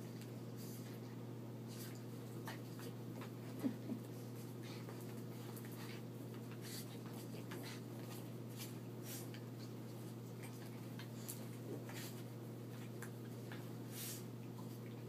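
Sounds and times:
steady low hum: 0.0s - 15.0s
dog paws scratching carpet: 4.2s - 15.0s.

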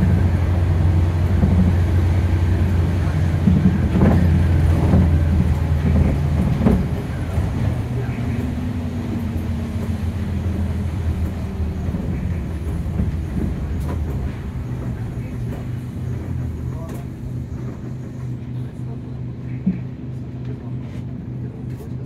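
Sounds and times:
diesel bus engine drone: 0.0s - 22.0s.

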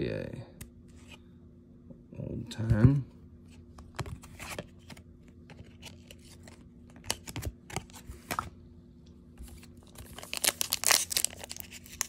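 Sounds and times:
cards rustling and flicking: 3.8s - 8.5s, 9.4s - 12.0s.

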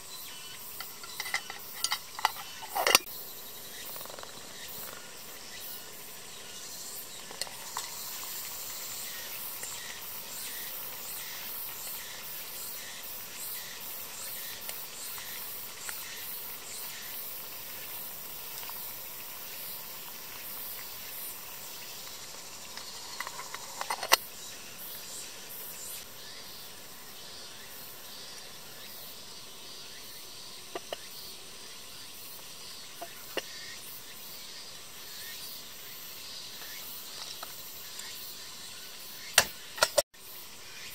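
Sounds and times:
kettle water hissing: 0.0s - 3.3s, 4.0s - 40.0s
insects buzzing faintly: 0.0s - 40.9s
kettle lid clinking: 0.8s - 3.0s, 30.8s - 31.0s.

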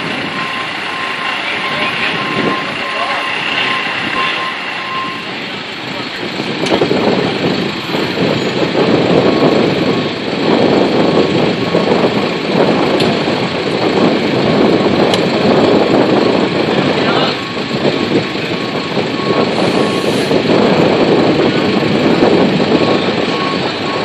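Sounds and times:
reversing alarm beeping: 0.0s - 5.7s, 17.3s - 20.4s, 22.7s - 24.0s
heavy truck engine running: 0.0s - 24.0s.

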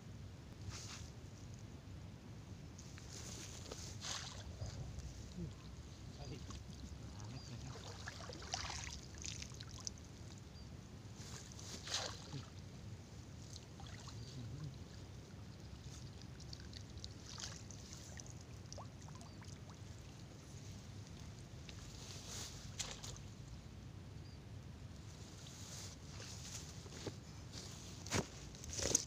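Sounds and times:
rustles: 0.5s - 1.7s, 2.7s - 7.8s, 11.1s - 12.8s, 19.9s - 23.6s, 25.0s - 29.0s
water splashes: 6.3s - 10.0s, 13.5s - 14.8s, 15.9s - 20.2s.

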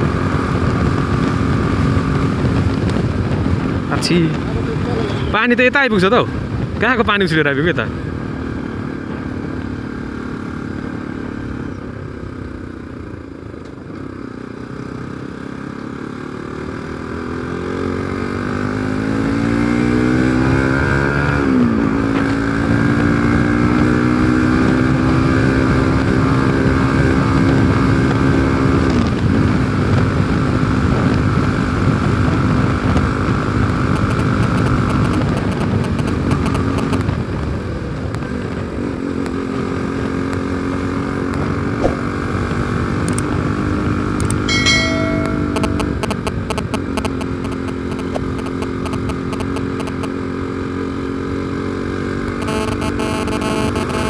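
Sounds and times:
motorcycle engine revving: 0.0s - 5.4s, 7.8s - 54.0s.

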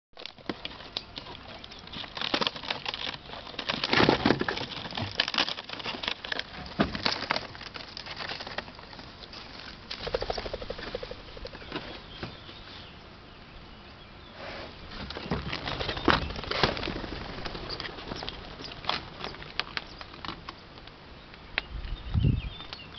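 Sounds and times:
knocks and rustles: 0.2s - 10.2s, 14.9s - 20.6s
birds flapping wings: 9.9s - 11.9s, 15.0s - 20.6s.

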